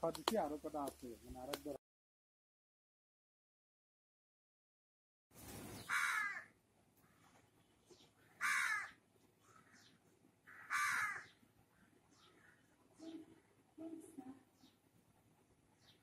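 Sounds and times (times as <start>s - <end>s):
crow cawing: 5.8s - 7.2s, 8.3s - 11.4s.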